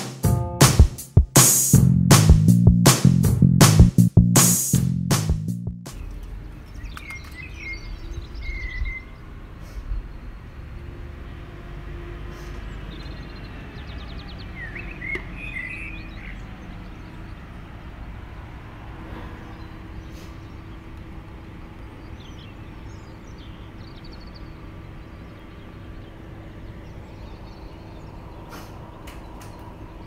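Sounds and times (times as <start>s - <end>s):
birds chirping: 5.9s - 10.6s, 12.9s - 17.9s, 19.1s - 30.0s.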